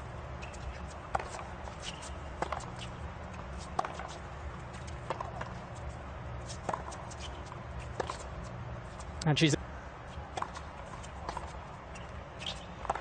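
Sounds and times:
shoe squeaks on court: 0:12.0 - 0:12.8.

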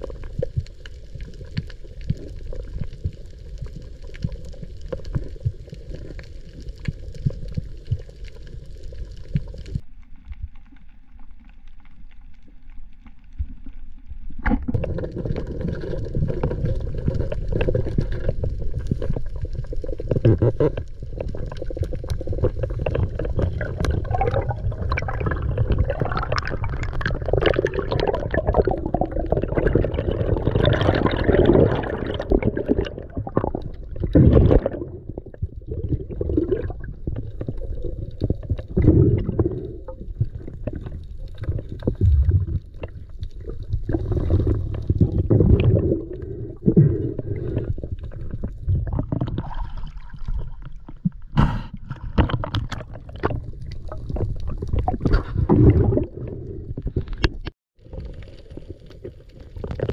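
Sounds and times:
gurgling bubbles: 0:00.0 - 0:09.8, 0:14.3 - 0:59.9
underwater water rushing: 0:14.3 - 0:59.9.

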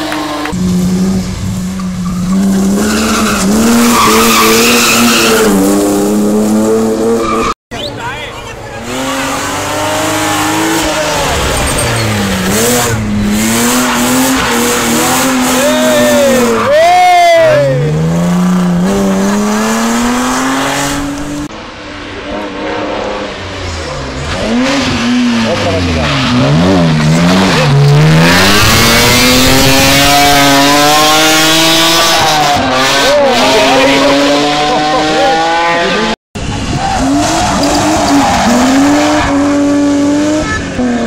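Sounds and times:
rally car engine accelerating: 0:22.2 - 0:41.0.

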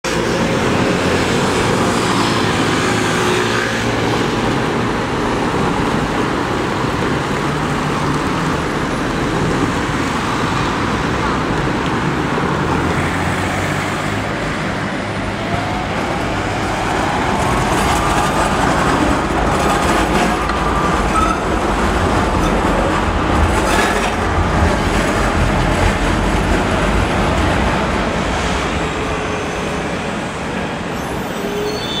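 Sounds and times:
street traffic: 0:00.0 - 0:32.0
tram passing rumble: 0:00.1 - 0:32.0
wheels whining and clicking on rails: 0:14.2 - 0:32.0.

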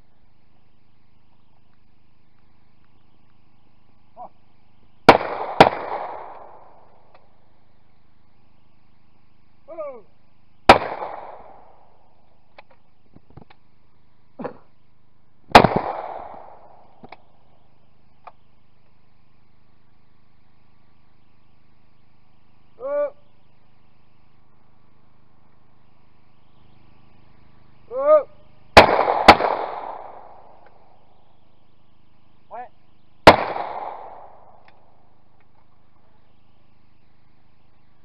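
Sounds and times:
faint clicks: 0:01.3 - 0:03.4, 0:12.5 - 0:13.7, 0:34.6 - 0:35.8
shotgun shots echoing: 0:05.0 - 0:07.2, 0:10.7 - 0:12.0, 0:15.5 - 0:17.3, 0:28.8 - 0:30.9, 0:33.2 - 0:34.9.

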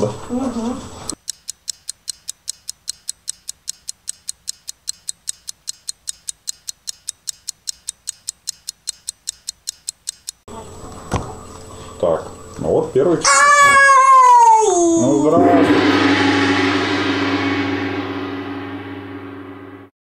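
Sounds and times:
rapid clock ticking: 0:01.1 - 0:10.5
sharp knock: 0:15.4 - 0:19.9.

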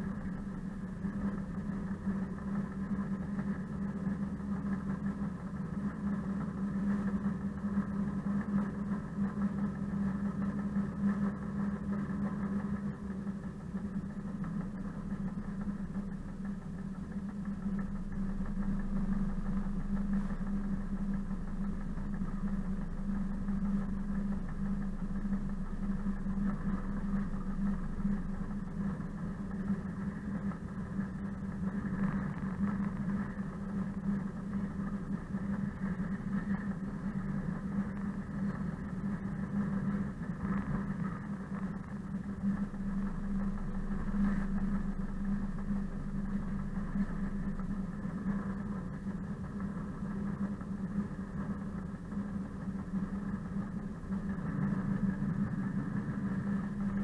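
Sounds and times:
diesel locomotive engine droning: 0:12.8 - 0:40.5, 0:41.1 - 0:57.0.

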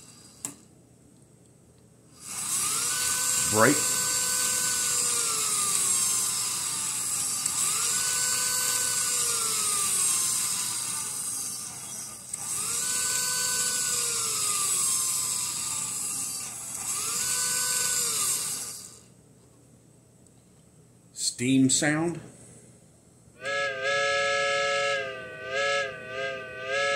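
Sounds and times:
synthesized brake squeal: 0:23.4 - 0:26.9.

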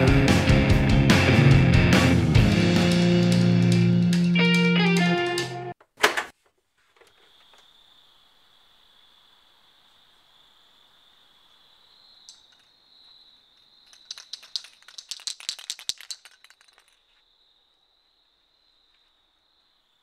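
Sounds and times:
sharp rattling clicks: 0:13.8 - 0:17.0.

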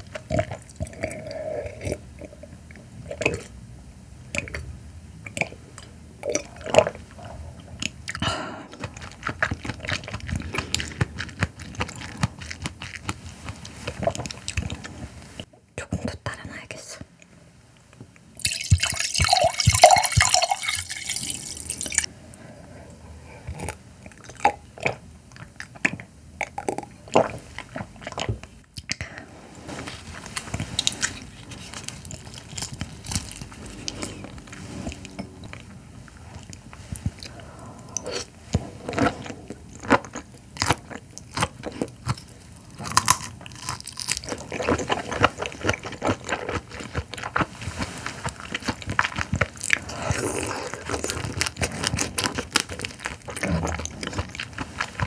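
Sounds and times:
wine pouring into a glass: 0:18.4 - 0:22.1.

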